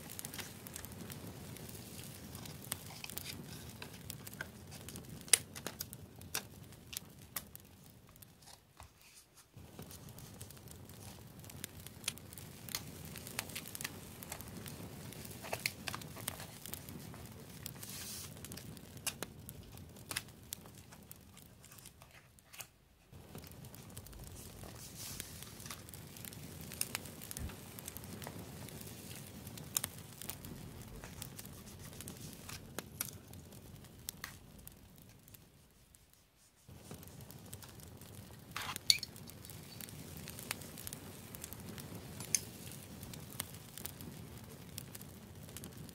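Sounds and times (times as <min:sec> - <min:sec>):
sticker paper crinkling and peeling: 0:15.2 - 0:22.8.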